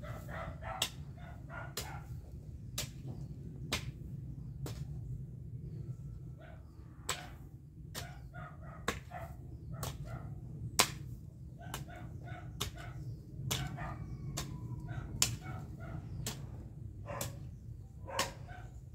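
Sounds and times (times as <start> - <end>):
steady low rumble: 0.0 - 18.9
hoe chopping soil: 10.8 - 11.9, 12.5 - 14.6.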